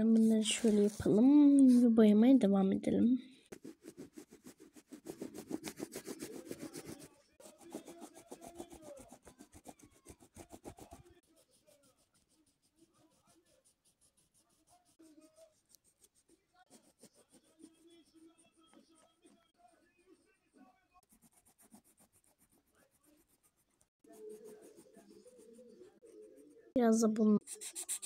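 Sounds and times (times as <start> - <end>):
crayon rubbing on paper: 3.5 - 18.9, 21.0 - 28.0.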